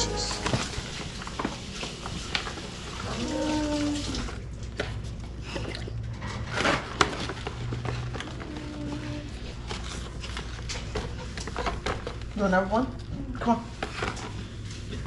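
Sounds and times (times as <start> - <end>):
water running at sink: 0.0 - 4.5.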